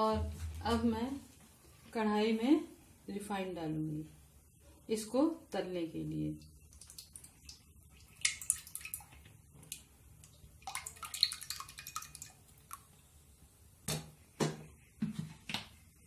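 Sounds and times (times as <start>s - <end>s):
oil trickling into a metal pot: 6.4s - 13.0s.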